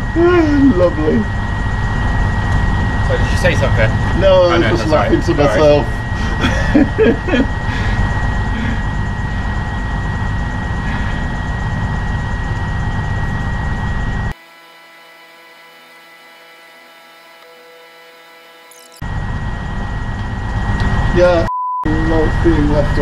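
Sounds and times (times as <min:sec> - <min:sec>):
diesel train engine idling: 0:00.0 - 0:14.3
quiet hum with faint tones: 0:00.0 - 0:14.4.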